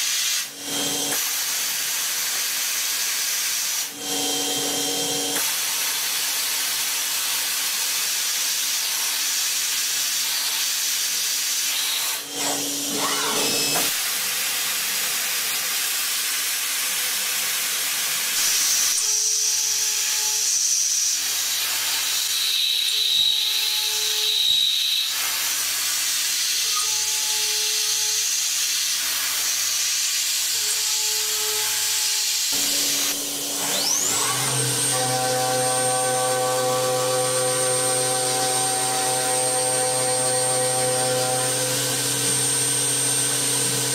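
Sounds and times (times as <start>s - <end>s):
milling machine cutting metal: 10.1s - 17.2s, 29.2s - 43.9s
rising whine: 32.6s - 43.9s.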